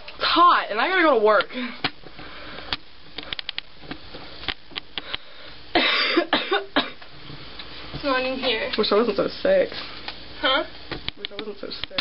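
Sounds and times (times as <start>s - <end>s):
person coughing: 5.7s - 7.0s.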